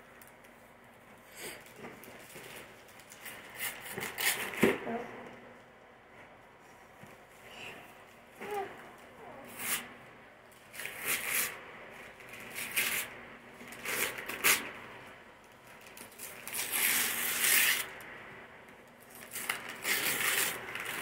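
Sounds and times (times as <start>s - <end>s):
wrapping paper tearing and crinkling: 1.4s - 4.7s, 9.5s - 9.9s, 10.6s - 14.7s, 15.8s - 18.0s, 19.0s - 21.0s.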